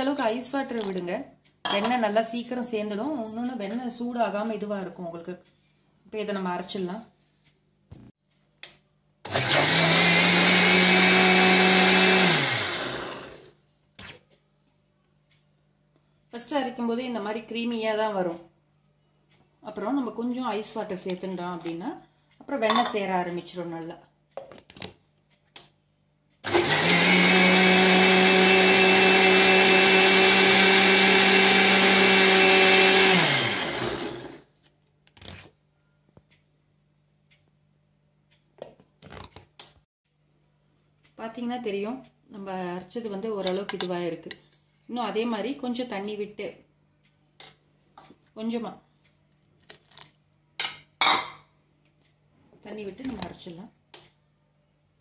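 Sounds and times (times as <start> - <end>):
mixer grinder motor spinning: 9.3 - 13.5, 26.4 - 34.4.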